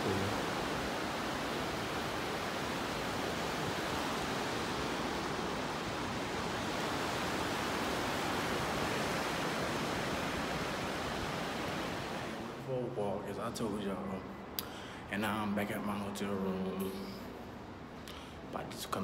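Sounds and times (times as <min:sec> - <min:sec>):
ocean surf washing in: 0:00.0 - 0:13.4.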